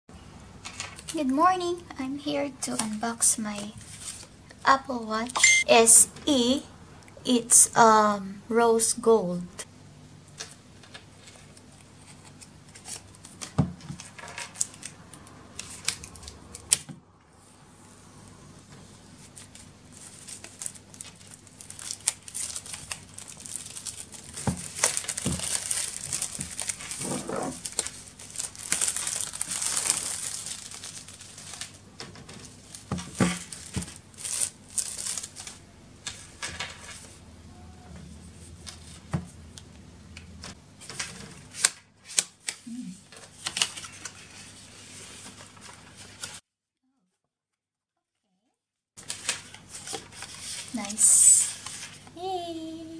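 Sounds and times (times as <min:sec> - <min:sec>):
plastic wrap crinkling and tearing: 0:10.4 - 0:16.8, 0:19.2 - 0:36.9, 0:49.0 - 0:52.1.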